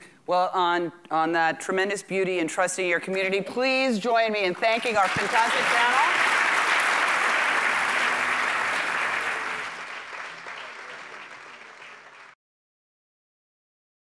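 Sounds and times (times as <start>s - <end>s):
audience applauding: 4.6s - 12.4s.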